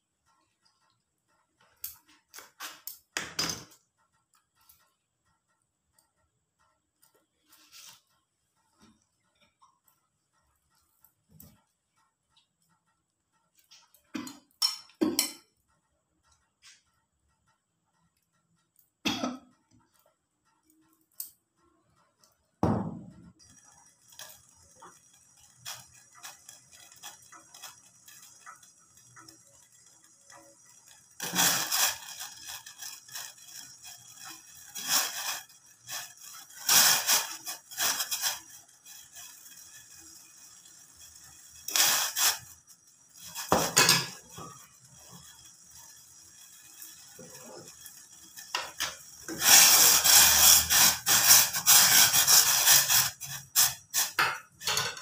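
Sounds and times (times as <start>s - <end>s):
gas burner hiss: 22.6s - 55.0s.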